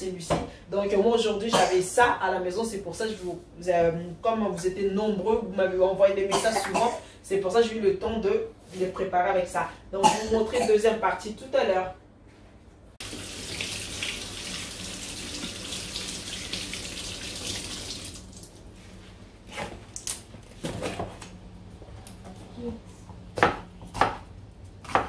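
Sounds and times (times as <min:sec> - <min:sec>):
kitchen tap running: 0:13.0 - 0:18.6.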